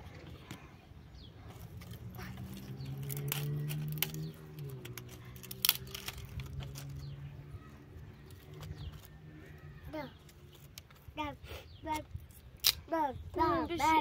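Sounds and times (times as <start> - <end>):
dry sticks snapping: 1.8 - 7.2, 12.3 - 12.8.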